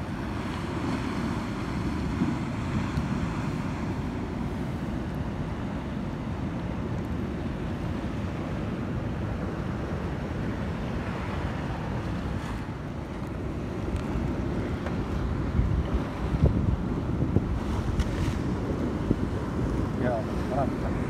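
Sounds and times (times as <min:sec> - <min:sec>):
sea water washing against quay: 0:00.0 - 0:21.0
wind rumble on microphone: 0:00.0 - 0:21.0.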